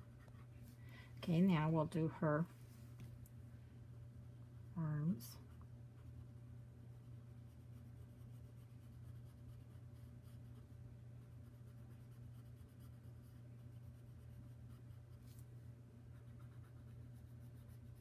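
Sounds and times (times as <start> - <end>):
steady low hum: 0.0 - 18.0
pen scratching on paper: 11.4 - 15.2.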